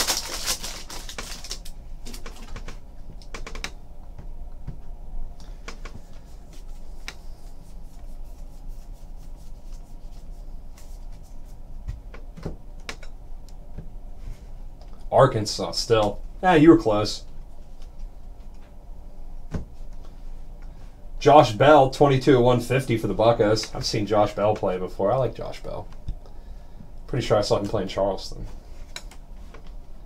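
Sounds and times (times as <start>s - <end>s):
foil pack rustling: 0.0s - 2.7s
trading cards clicking and rustling: 0.0s - 3.8s
steady low hum: 0.0s - 30.0s.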